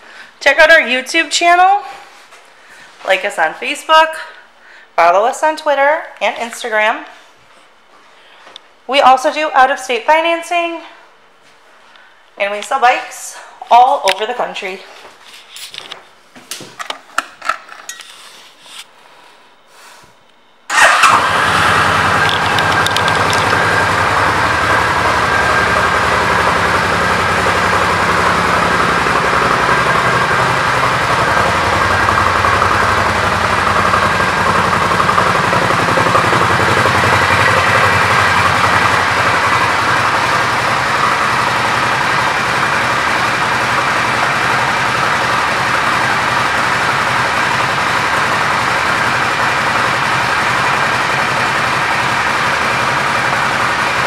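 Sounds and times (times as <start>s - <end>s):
motorcycle engine starting and idling: 20.7s - 54.0s.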